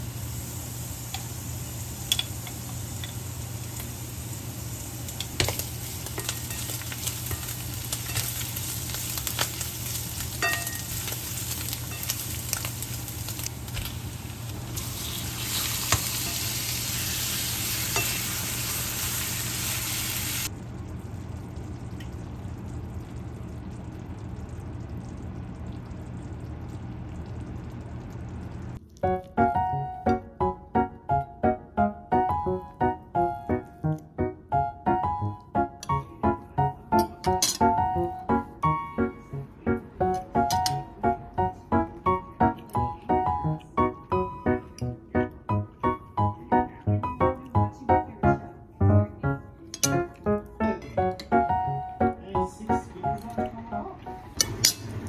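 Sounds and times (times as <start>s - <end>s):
meat and onions sizzling in pan: 0.0s - 23.0s
piano music: 5.1s - 20.5s, 28.8s - 55.0s.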